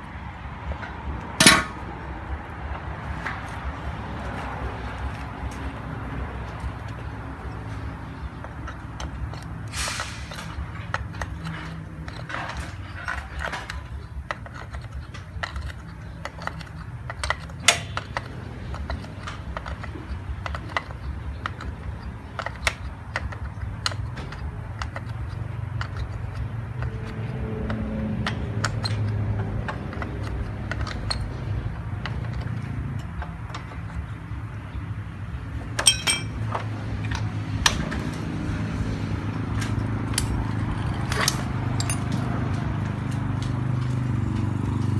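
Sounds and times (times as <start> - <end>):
metallic clicks and clinks: 10.3 - 34.0, 35.7 - 38.1, 39.5 - 43.2.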